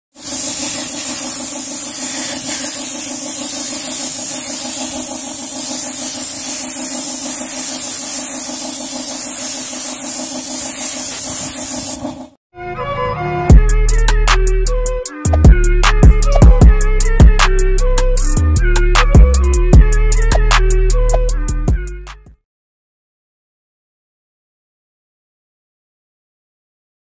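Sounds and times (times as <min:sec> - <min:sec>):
spray gun hissing: 0:00.1 - 0:12.3
pulsing mechanical hum: 0:00.2 - 0:12.4, 0:13.5 - 0:21.9.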